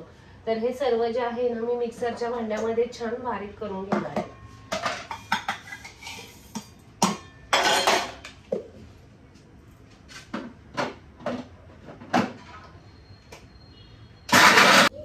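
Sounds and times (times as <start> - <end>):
steel bowls clinking and knocking: 4.0 - 8.3.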